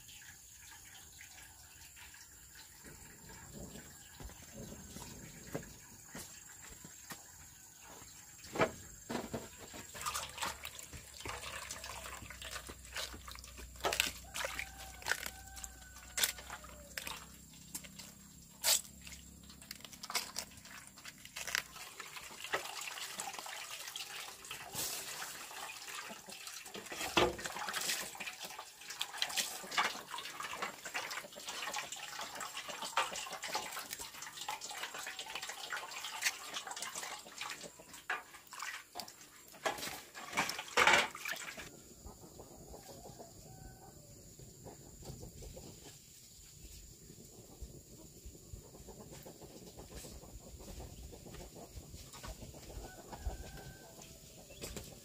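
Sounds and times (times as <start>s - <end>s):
water dripping and splashing: 0.0s - 41.7s.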